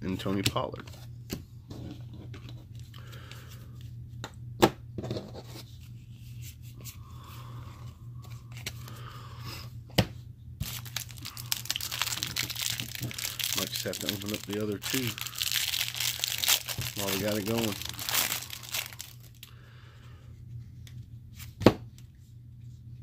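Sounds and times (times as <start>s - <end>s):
steady low hum: 0.0s - 23.0s
trading cards handled on tabletop: 7.8s - 9.0s
cellophane wrapper tearing: 10.6s - 19.5s.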